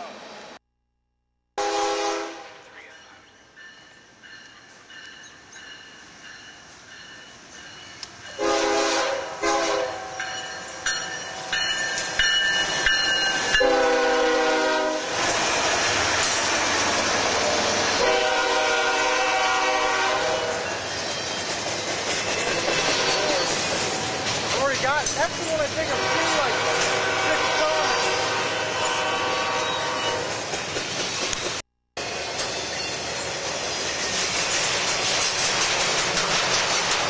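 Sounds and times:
train air horn blasts: 1.6s - 2.8s, 8.4s - 10.1s, 13.6s - 15.3s, 18.0s - 20.6s, 22.7s - 23.5s, 25.8s - 30.3s
train wheels clattering on rails: 20.5s - 27.1s, 30.1s - 37.0s.

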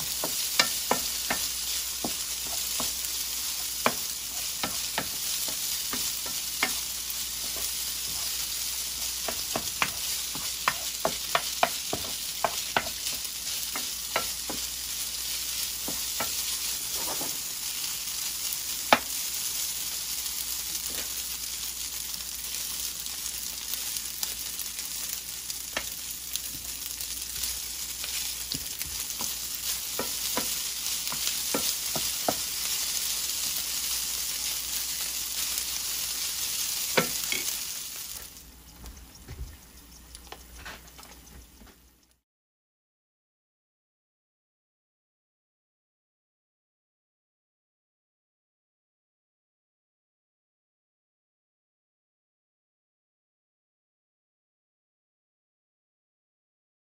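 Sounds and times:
wooden spatula scraping pan: 0.0s - 17.5s, 25.8s - 33.8s, 34.4s - 37.6s
rice sizzling in a skillet: 0.0s - 42.2s
spatula tapping on pan: 0.1s - 3.1s, 3.7s - 8.3s, 9.1s - 14.8s, 15.8s - 16.6s, 18.9s - 19.2s, 25.7s - 26.7s, 28.0s - 32.5s, 36.9s - 37.5s.

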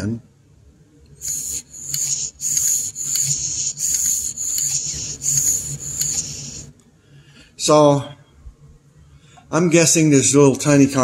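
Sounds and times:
breathy puffs through hose: 1.2s - 6.7s
high air whistle: 1.2s - 6.7s.

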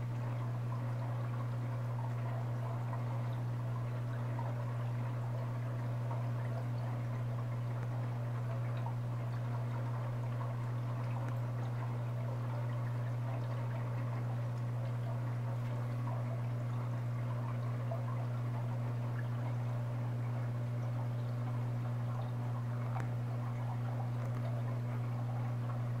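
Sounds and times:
aquarium water bubbling: 0.0s - 26.0s
low equipment hum: 0.0s - 26.0s.

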